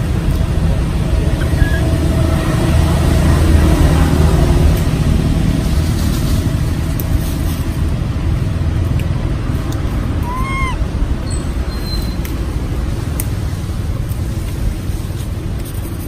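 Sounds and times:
motor vehicle rumble: 0:00.0 - 0:16.0
short squeaky call: 0:01.4 - 0:01.9, 0:10.2 - 0:12.2.

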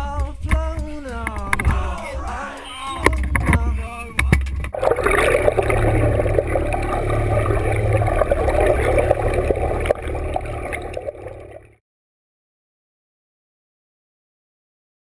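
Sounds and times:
steady low rumble: 0:04.7 - 0:11.7
muffled underwater bubbling: 0:04.7 - 0:11.8.

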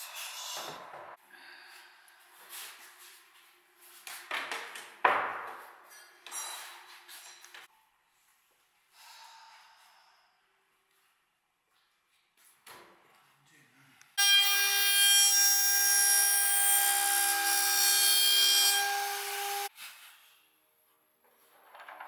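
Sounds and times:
router cutting wood whining: 0:14.2 - 0:19.7.

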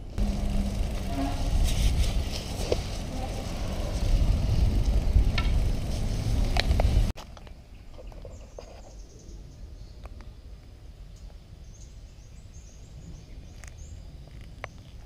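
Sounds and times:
low background rumble: 0:00.0 - 0:07.2.

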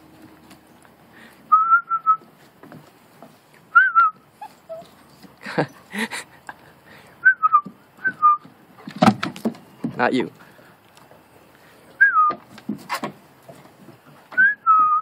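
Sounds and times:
puppy whining: 0:03.8 - 0:06.0.

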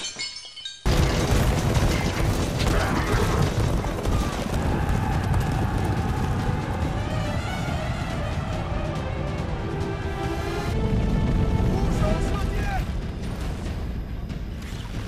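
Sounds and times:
many hooves galloping on dry ground: 0:00.8 - 0:14.4
music: 0:00.8 - 0:15.0.

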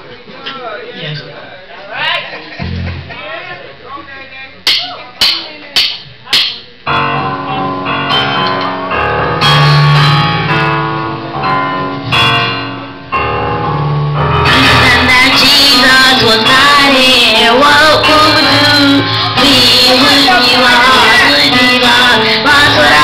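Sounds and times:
electric keyboard chords: 0:02.6 - 0:03.1, 0:06.8 - 0:23.0
bass guitar line: 0:02.6 - 0:03.2, 0:06.9 - 0:23.0
boy singing: 0:14.5 - 0:23.0.

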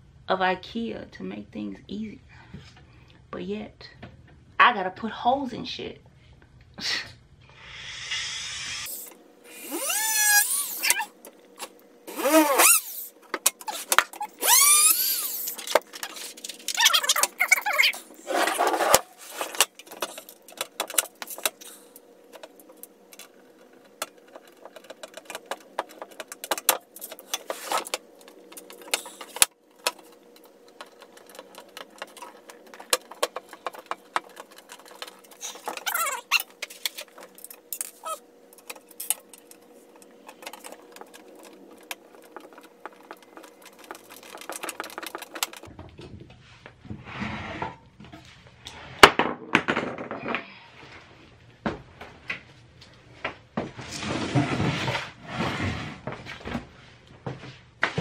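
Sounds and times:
short squeaky gliding sounds: 0:08.8 - 0:11.1, 0:12.1 - 0:13.1, 0:13.7 - 0:16.2, 0:35.4 - 0:36.5.

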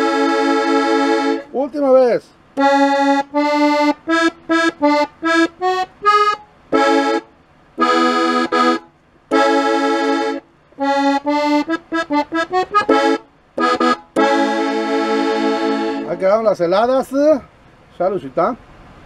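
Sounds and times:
button accordion playing: 0:00.0 - 0:01.6, 0:02.6 - 0:16.5.

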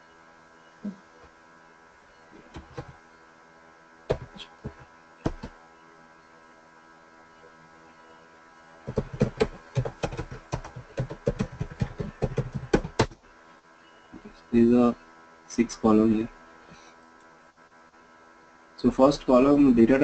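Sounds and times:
computer keyboard typing: 0:02.5 - 0:03.0, 0:04.1 - 0:05.6, 0:08.8 - 0:13.2.

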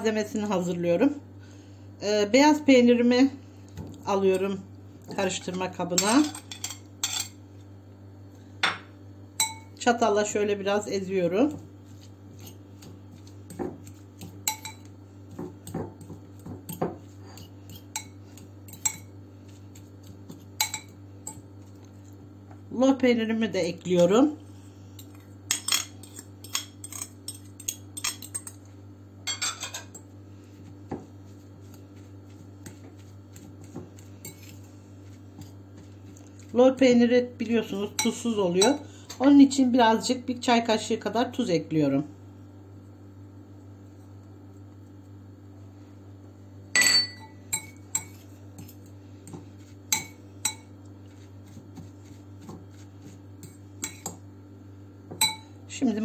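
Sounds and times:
fork clinking against glass bowl: 0:46.8 - 0:48.2.

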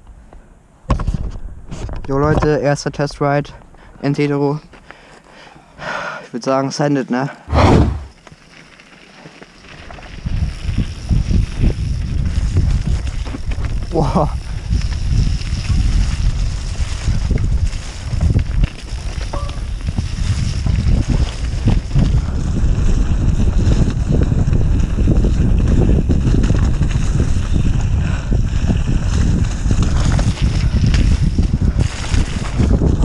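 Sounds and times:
bike rattling over rough ground: 0:08.0 - 0:33.0
wind buffeting microphone: 0:10.1 - 0:33.0.

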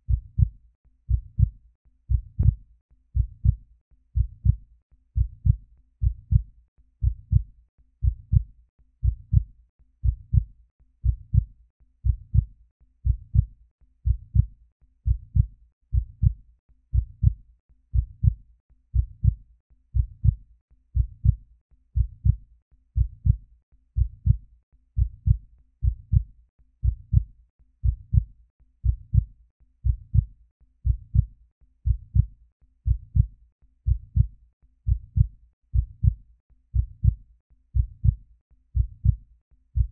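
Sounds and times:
heartbeat thumps: 0:00.1 - 0:00.5, 0:01.1 - 0:02.6, 0:03.2 - 0:03.6, 0:04.2 - 0:04.6, 0:05.2 - 0:13.5, 0:14.1 - 0:14.5, 0:15.1 - 0:17.4, 0:18.0 - 0:18.4, 0:19.0 - 0:19.4, 0:20.0 - 0:20.4, 0:21.0 - 0:21.4, 0:22.0 - 0:22.4, 0:23.0 - 0:23.4, 0:24.0 - 0:24.4, 0:25.0 - 0:32.3, 0:32.9 - 0:33.3, 0:33.9 - 0:34.3, 0:34.9 - 0:36.2, 0:36.8 - 0:37.2, 0:37.8 - 0:38.2, 0:38.8 - 0:39.2.

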